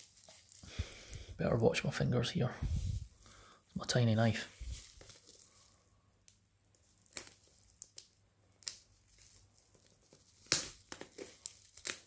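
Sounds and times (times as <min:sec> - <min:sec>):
bubble wrap crinkling and tearing: 0:00.0 - 0:01.3, 0:04.5 - 0:12.0.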